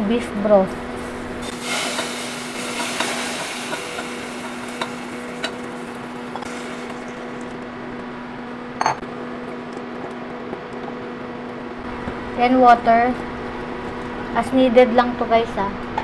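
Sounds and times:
low hum: 0:00.8 - 0:09.0
roux sizzling hiss: 0:01.0 - 0:07.6.

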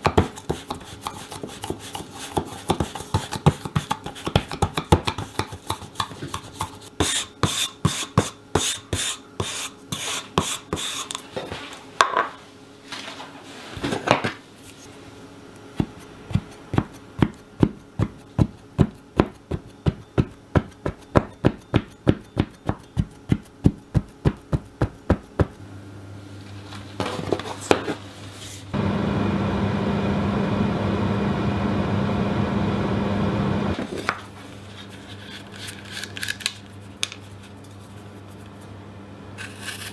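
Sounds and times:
plastic cup tapping dough: 0:02.6 - 0:06.8.

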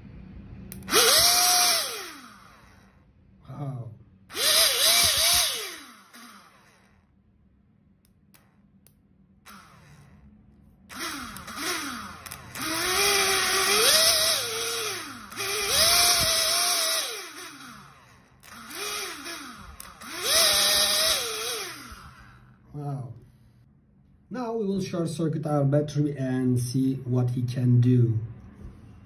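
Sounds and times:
small electric motor whining: 0:00.7 - 0:03.0, 0:04.3 - 0:07.1, 0:09.5 - 0:10.3, 0:10.9 - 0:22.8.

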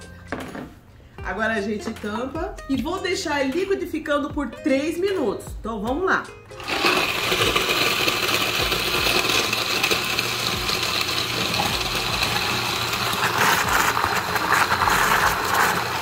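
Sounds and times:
blender running: 0:06.6 - 0:16.0.

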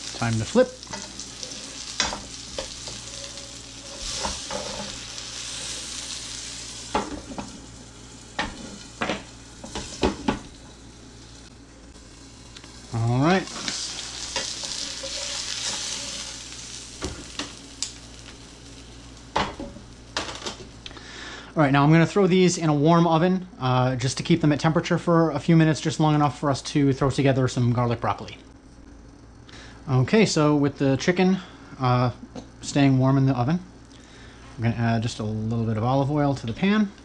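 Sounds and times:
chicken sizzling in a skillet: 0:00.0 - 0:20.9.

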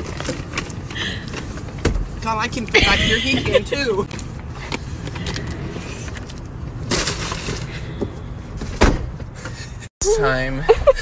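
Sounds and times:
car door slamming shut: 0:08.7 - 0:09.2.

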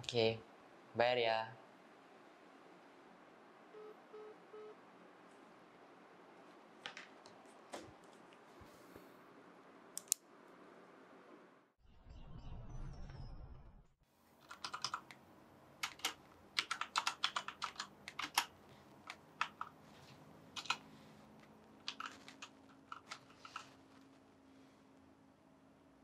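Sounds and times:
keyboard typing clicks: 0:14.4 - 0:15.2, 0:15.8 - 0:18.5, 0:20.6 - 0:20.8, 0:21.8 - 0:23.7.

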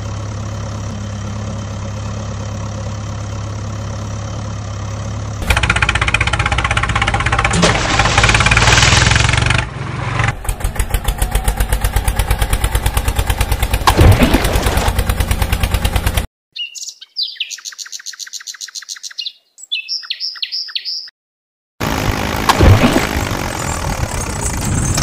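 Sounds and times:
tractor engine chugging: 0:00.0 - 0:16.3, 0:21.8 - 0:25.0
high chirping calls: 0:16.5 - 0:21.1.

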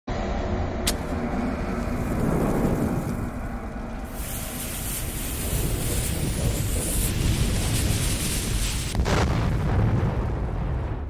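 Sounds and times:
low rumble: 0:00.1 - 0:11.0
rushing hiss of flame: 0:00.9 - 0:09.8
bomb fuse hissing: 0:01.8 - 0:09.3.

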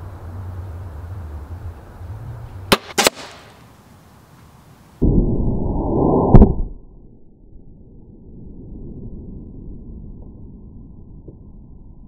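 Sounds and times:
crossbow shot cracks: 0:02.7 - 0:03.6
deep muffled slowed-down rush: 0:05.0 - 0:12.0.

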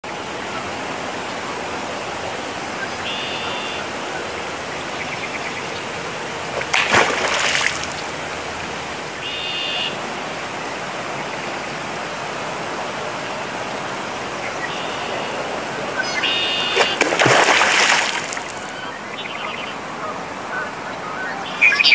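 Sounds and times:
water rushing: 0:00.0 - 0:21.8
short high calls: 0:03.0 - 0:04.3, 0:09.2 - 0:10.0, 0:14.7 - 0:17.0
loud water splash: 0:06.4 - 0:09.8, 0:16.3 - 0:18.8.

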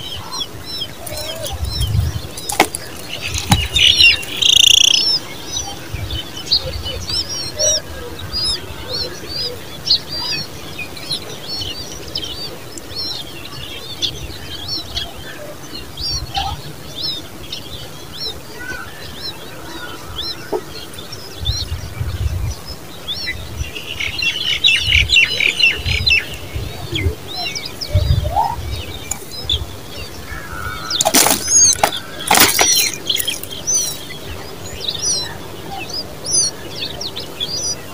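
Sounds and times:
birds chirping: 0:00.0 - 0:37.9
wing flutters: 0:30.7 - 0:34.2.

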